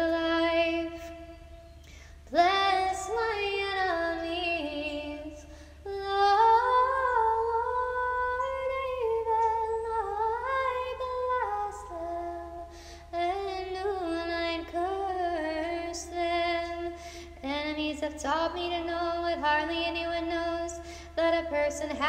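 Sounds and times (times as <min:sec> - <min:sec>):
woman singing chant: 0:02.3 - 0:22.0.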